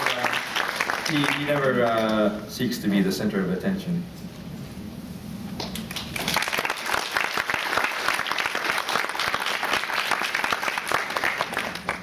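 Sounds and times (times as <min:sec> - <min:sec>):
audience applauding: 0:00.0 - 0:02.4, 0:05.6 - 0:12.0.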